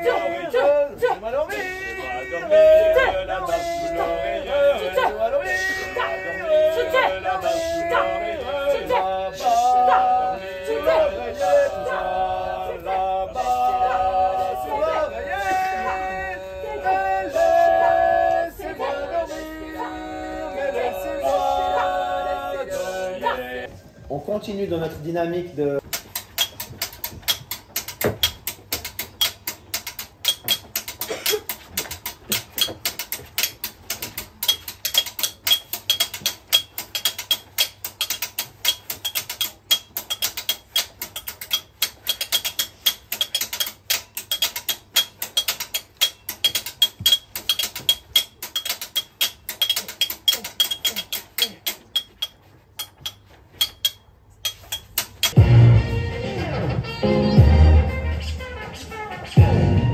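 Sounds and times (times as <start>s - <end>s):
sharp knocks and clicks: 25.8s - 55.4s.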